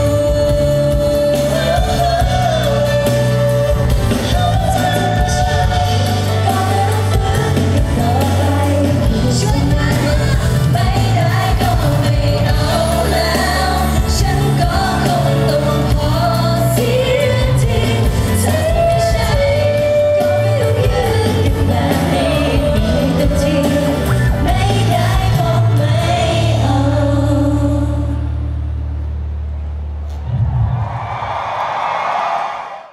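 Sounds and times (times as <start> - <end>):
woman singing into microphone: 0.0 - 28.6
drums: 0.0 - 32.7.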